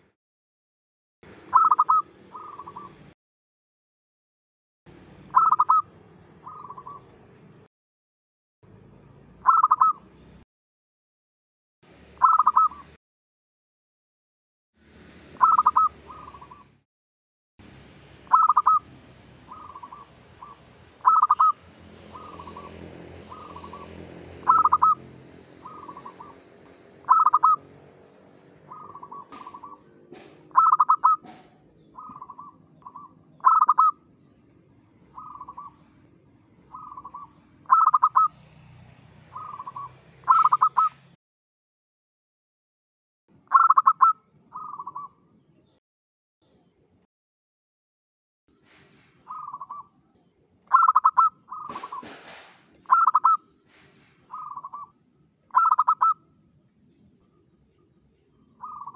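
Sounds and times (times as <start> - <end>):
dove cooing: 1.5 - 3.0, 5.3 - 7.1, 9.4 - 10.0, 12.2 - 12.8, 15.4 - 16.7, 18.3 - 18.8, 19.5 - 25.0, 25.6 - 27.6, 28.6 - 34.0, 35.2 - 35.9, 36.7 - 38.4, 39.3 - 41.0, 43.5 - 45.1, 49.3 - 49.8, 50.7 - 53.4, 54.3 - 54.9, 55.5 - 56.2, 58.6 - 58.9.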